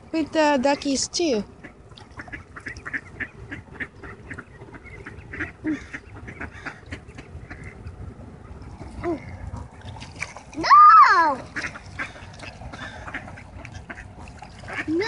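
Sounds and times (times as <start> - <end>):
ducks quacking: 1.6 - 8.1, 11.4 - 15.0.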